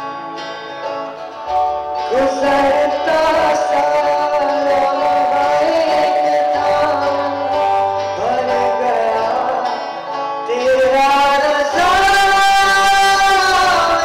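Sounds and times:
acoustic guitar: 0:00.0 - 0:14.0
man singing into microphone: 0:02.0 - 0:14.0.

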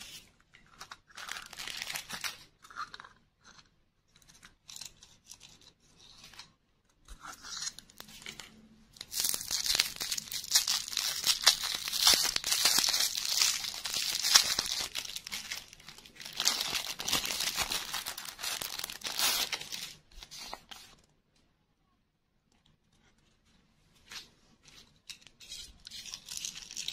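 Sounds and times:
plastic wrapper crinkling: 0:00.8 - 0:03.0, 0:07.5 - 0:21.0, 0:25.1 - 0:26.9.

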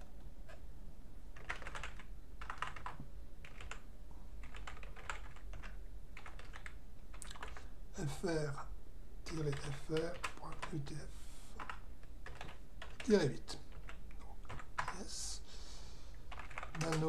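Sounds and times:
typing on computer keyboard: 0:01.4 - 0:03.8, 0:04.4 - 0:07.7, 0:09.3 - 0:10.8, 0:11.6 - 0:15.0, 0:16.3 - 0:17.0.

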